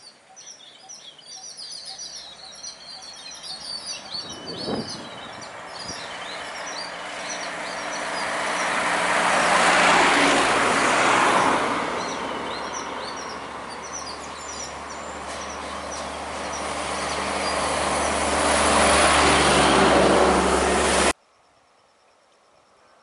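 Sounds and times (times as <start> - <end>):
birds chirping faintly: 0.0 - 8.8
heavy trucks driving past: 2.8 - 21.2.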